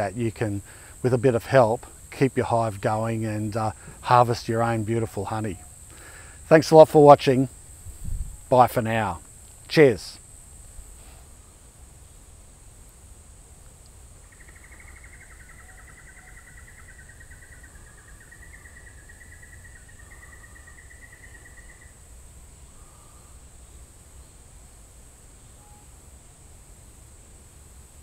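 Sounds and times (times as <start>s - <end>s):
insect chirring drone: 0.0s - 28.0s
rapid trilling call: 14.2s - 23.4s.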